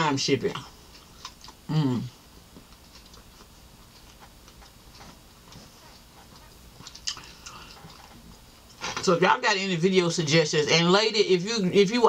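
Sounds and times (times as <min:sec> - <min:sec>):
chewing with soft mouth clicks: 0:00.6 - 0:08.8.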